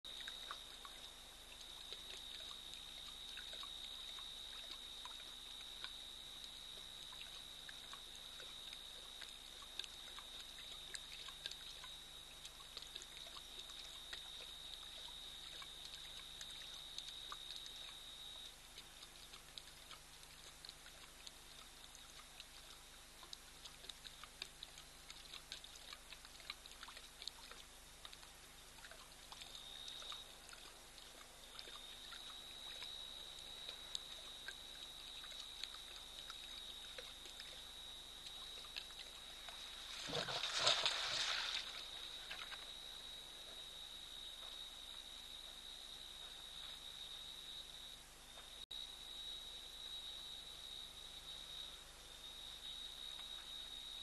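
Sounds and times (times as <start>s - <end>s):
lion lapping water: 0.1s - 49.1s, 50.1s - 54.0s.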